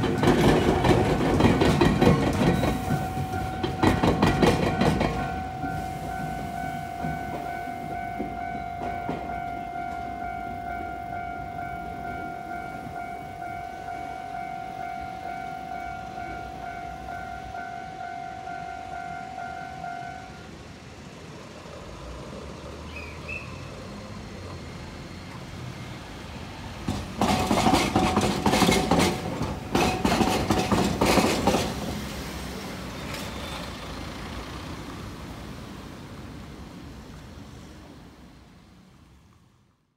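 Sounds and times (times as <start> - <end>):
streetcar wheels clattering: 0.0 - 17.9, 26.3 - 35.5
level-crossing warning bell: 0.0 - 20.6.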